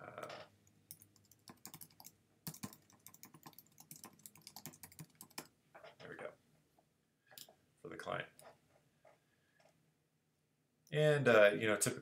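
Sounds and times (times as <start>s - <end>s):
faint keyboard typing: 0.6s - 6.0s.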